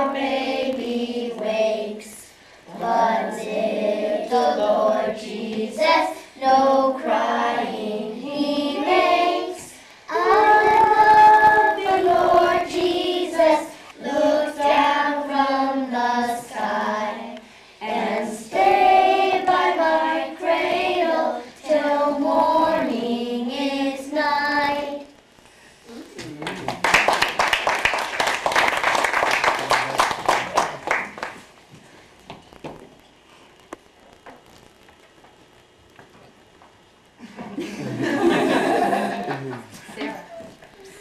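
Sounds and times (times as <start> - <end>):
girls singing together: 0.0 - 25.2.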